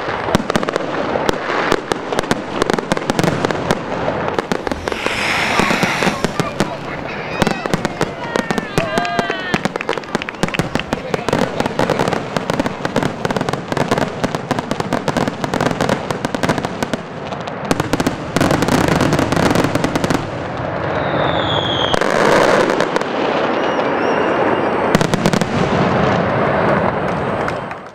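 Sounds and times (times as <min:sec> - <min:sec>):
fireworks crackling bangs and pops: 0:00.0 - 0:27.9
falling firework whistle: 0:04.4 - 0:10.8, 0:20.7 - 0:27.9.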